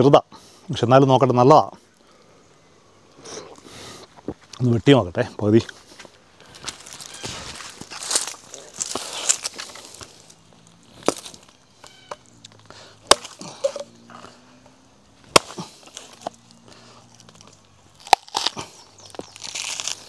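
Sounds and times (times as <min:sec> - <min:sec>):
billhook chopping coconut husk: 0:13.0 - 0:14.3, 0:15.2 - 0:16.3, 0:18.0 - 0:20.0.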